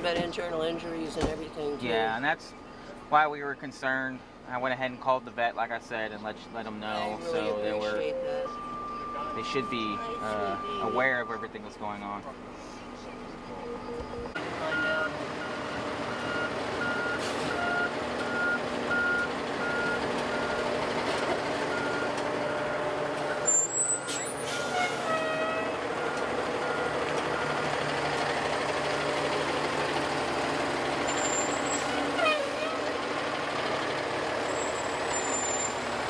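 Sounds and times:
diesel engine running: 4.2 - 36.0
reversing alarm beeps: 7.4 - 11.6, 13.6 - 20.6.

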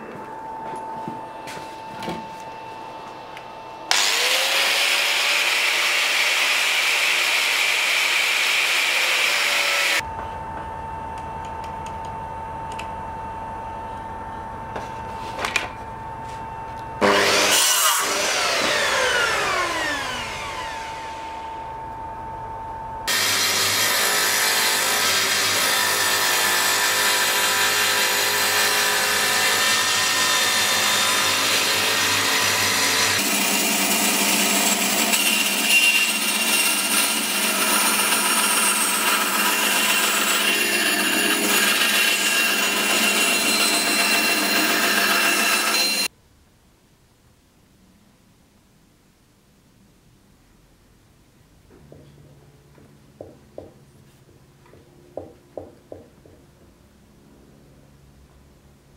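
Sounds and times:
bandsaw running: 3.9 - 10.0, 17.0 - 21.5, 23.1 - 46.1
mitre saw cutting wood: 3.9 - 10.0, 17.0 - 21.5, 23.1 - 46.1
saw blade winding down: 3.9 - 10.0, 17.0 - 21.6, 23.1 - 46.1
table saw running: 3.9 - 10.1, 17.0 - 21.8, 23.0 - 46.1.

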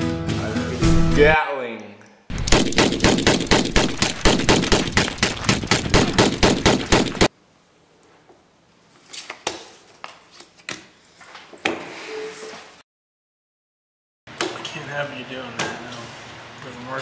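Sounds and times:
rapid machine-gun fire: 2.3 - 7.3.

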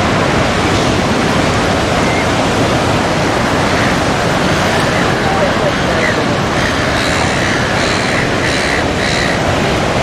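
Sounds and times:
surf breaking on beach: 0.0 - 10.0
wind on microphone: 0.0 - 10.0
faint crowd voices: 4.6 - 7.9.

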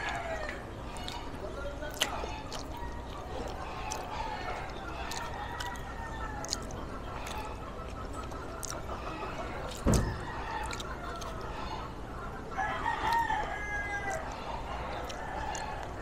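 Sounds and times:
rooster crowing: 0.0 - 0.7, 12.6 - 14.4
dull thump: 9.8 - 10.2.

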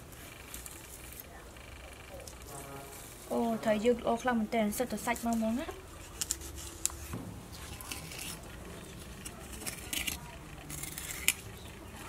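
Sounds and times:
knife scraping fish flesh: 6.0 - 11.7.

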